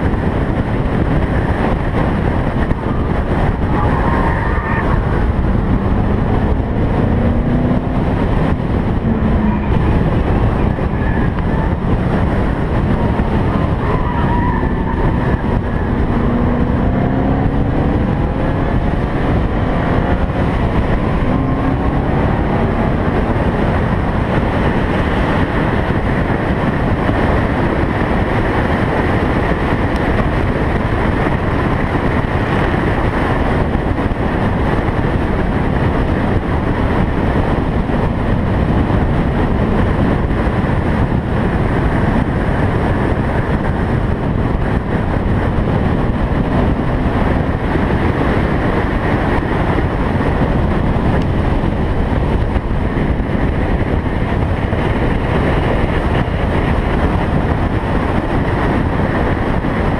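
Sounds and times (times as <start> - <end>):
car engine and tyre noise: 0.0 - 59.9
wind buffeting microphone: 0.0 - 59.9.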